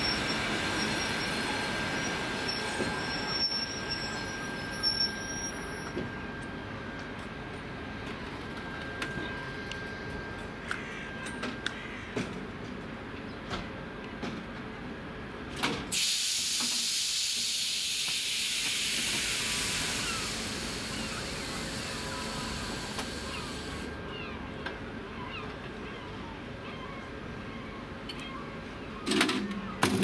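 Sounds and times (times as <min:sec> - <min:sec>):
air brakes hissing: 0:15.9 - 0:24.0.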